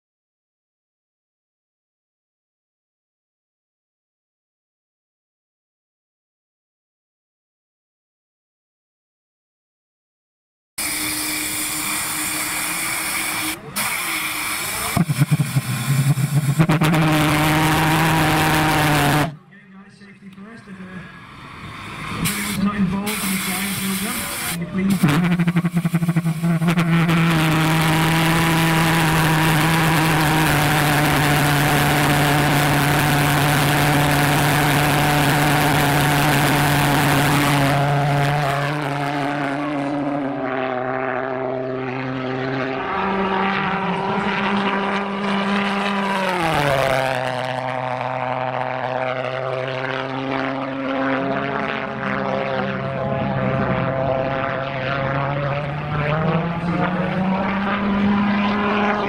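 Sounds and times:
pulse jet engine buzzing: 10.8 - 19.4, 21.0 - 39.6.

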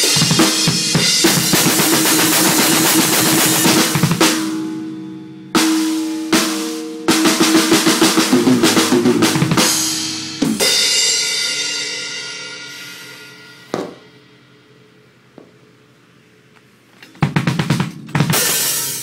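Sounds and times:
fast drum strokes: 0.0 - 4.6, 5.6 - 12.1, 17.2 - 19.0
cymbal crash ringing: 9.6 - 14.6, 18.2 - 19.0.

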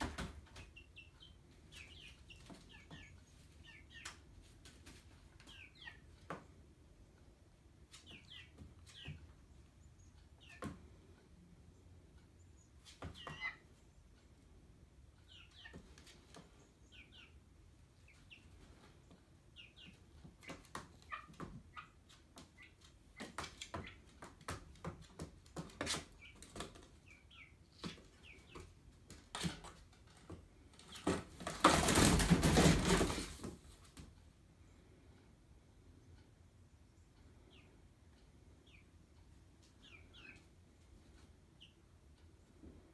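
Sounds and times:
chicken feet scratching cardboard: 20.3 - 34.0.

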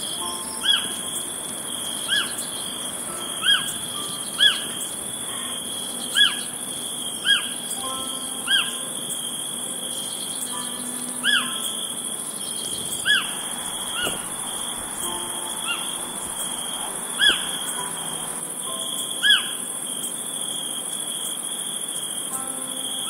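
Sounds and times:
insects trilling: 0.0 - 23.0
bird whistling: 0.2 - 1.0, 2.0 - 2.5, 3.2 - 4.8, 6.1 - 6.6, 7.2 - 8.8, 10.1 - 11.8, 12.6 - 16.6, 17.2 - 18.0.

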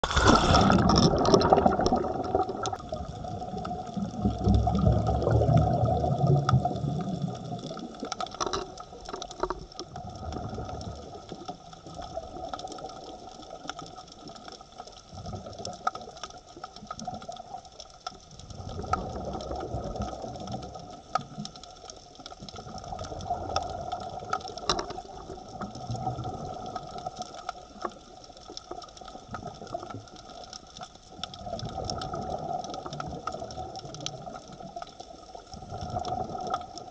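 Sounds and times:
low rush of bubbles: 0.0 - 8.2, 9.9 - 13.4, 18.4 - 21.0, 31.3 - 36.9
muffled water noise: 0.0 - 36.9.

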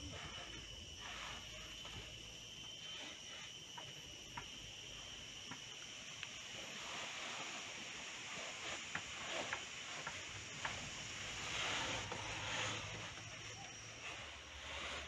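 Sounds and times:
light clicks of grains: 0.0 - 15.0
rice grains rustling on tray: 4.9 - 15.0.

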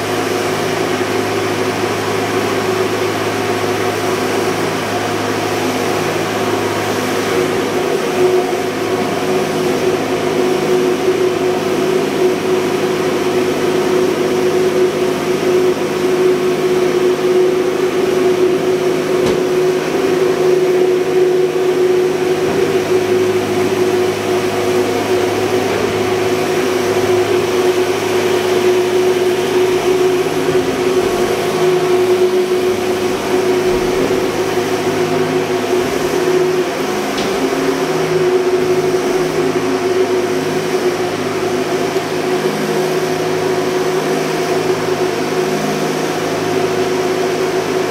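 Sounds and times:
engine room machinery drone: 0.0 - 47.9.

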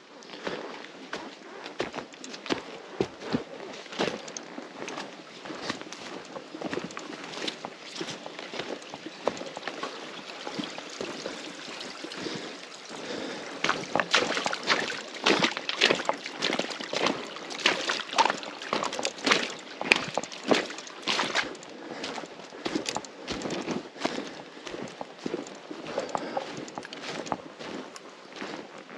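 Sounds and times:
footsteps wading through water: 0.1 - 28.9
river rushing: 6.7 - 23.0.

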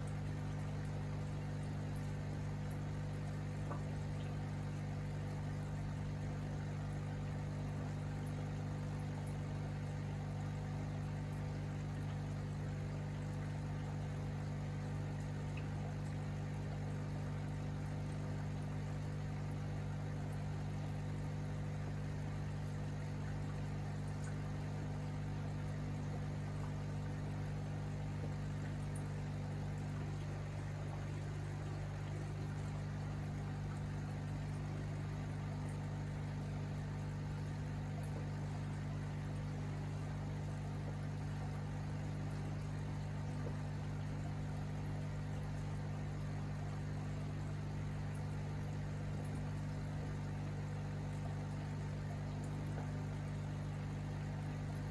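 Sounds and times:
air bubbles in water: 0.0 - 54.9
air pump humming: 27.9 - 40.1.

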